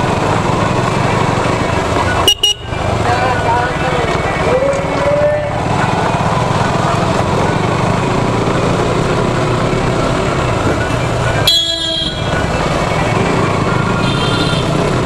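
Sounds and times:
motorcycle engine running: 0.0s - 15.0s
motorcycle horn blast: 2.2s - 2.8s, 11.4s - 12.3s, 14.0s - 14.8s.

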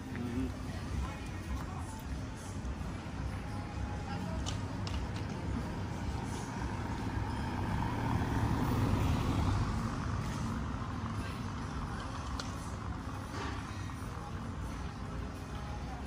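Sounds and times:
car passing by: 5.7s - 11.4s.

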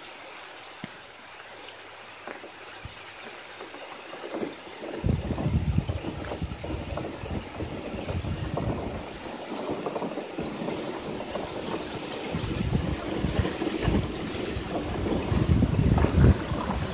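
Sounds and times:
wind buffeting microphone: 4.2s - 16.9s.

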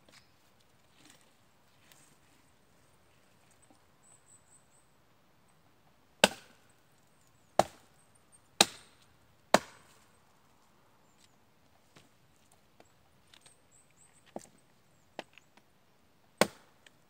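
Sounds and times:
axe chopping wood: 6.2s - 6.6s, 7.6s - 7.8s, 8.6s - 10.0s, 16.4s - 16.8s.

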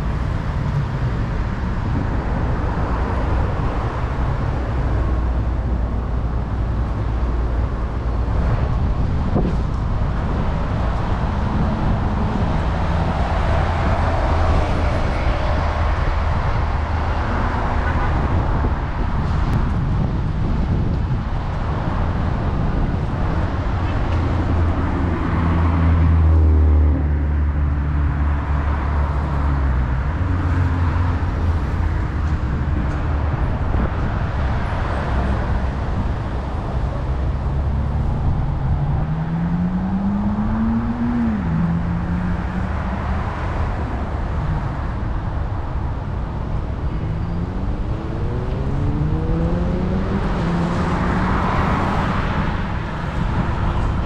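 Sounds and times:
low hum of traffic: 0.0s - 54.0s
vehicle engine accelerating: 21.8s - 45.1s, 46.3s - 54.0s.

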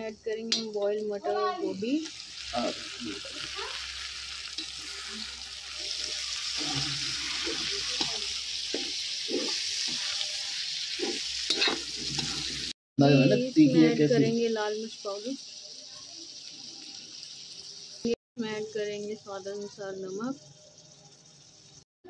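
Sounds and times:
frying sizzle: 0.0s - 21.9s
metal spatula scraping: 4.4s - 12.8s.

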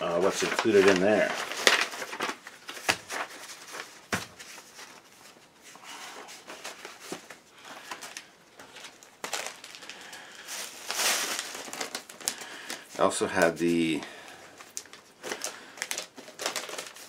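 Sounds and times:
paper rustling and sliding: 0.2s - 9.8s.

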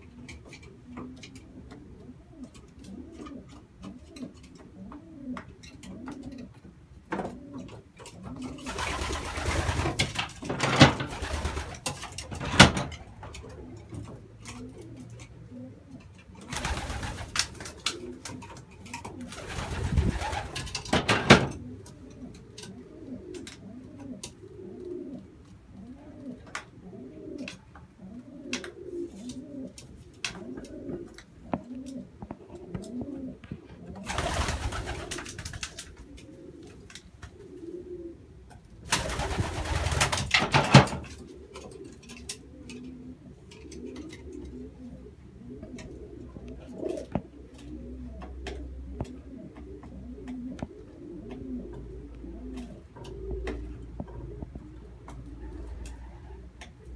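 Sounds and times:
pigeons cooing: 0.0s - 56.9s.

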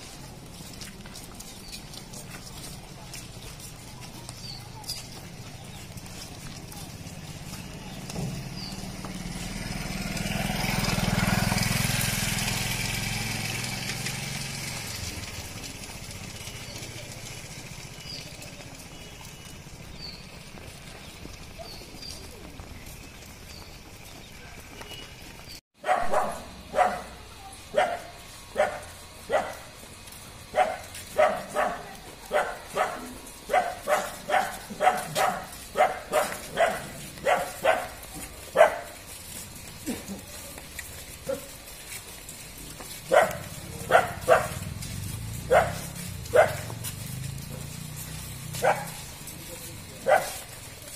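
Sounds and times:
vehicle engine passing by: 0.0s - 50.9s
dog barking: 25.8s - 29.8s, 30.5s - 39.0s, 41.2s - 41.6s, 43.1s - 44.7s, 45.4s - 47.2s, 48.6s - 49.1s, 50.0s - 50.6s.

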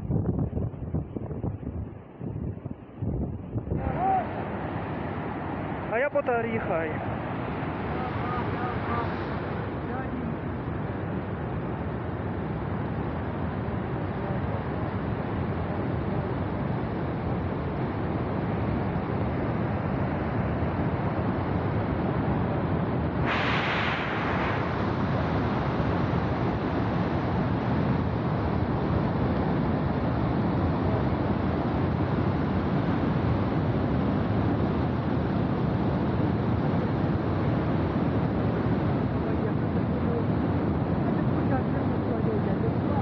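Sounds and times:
bright hiss: 23.2s - 25.6s.

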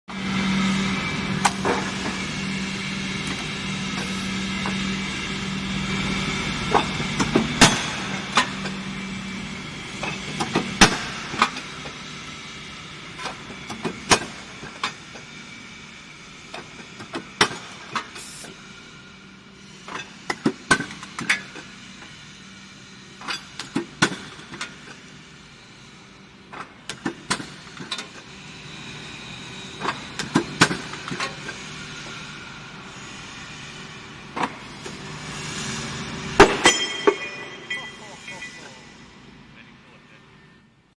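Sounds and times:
hydraulic pump hum: 0.1s - 40.9s
sharp metallic clanks and knocks: 6.6s - 8.8s, 36.2s - 39.0s.

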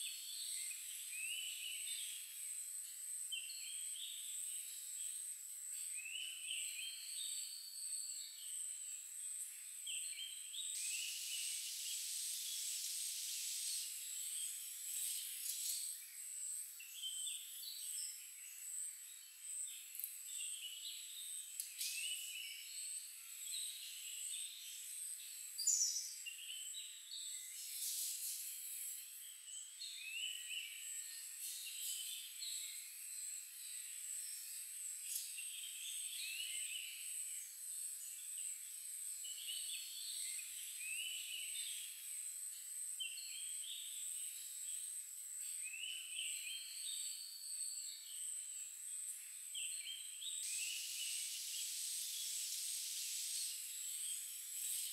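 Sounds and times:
high-pitched insect whine: 47.8s - 54.9s
hissing insect buzz: 50.4s - 54.9s.

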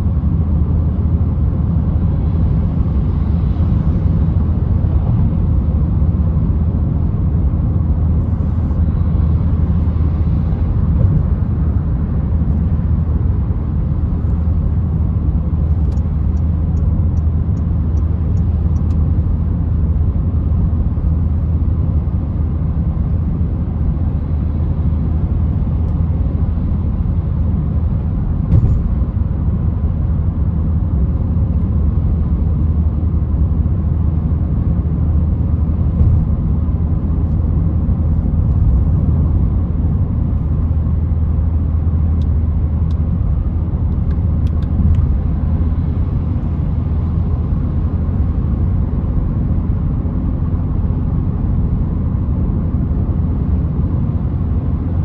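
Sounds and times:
car engine and road rumble: 0.0s - 55.0s.

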